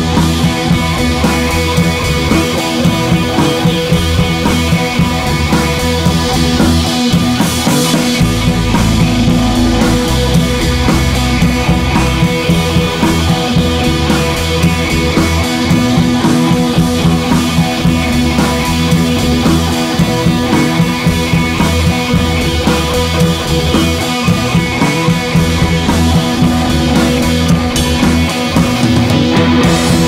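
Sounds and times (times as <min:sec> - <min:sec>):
drum kit: 0:00.0 - 0:30.0
electric guitar: 0:00.0 - 0:30.0
rock music: 0:00.0 - 0:30.0.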